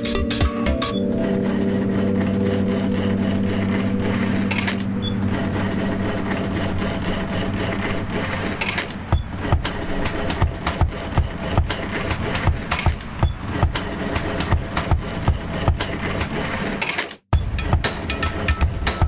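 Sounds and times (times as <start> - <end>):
drum thumps: 9.0 - 16.0, 17.3 - 19.0.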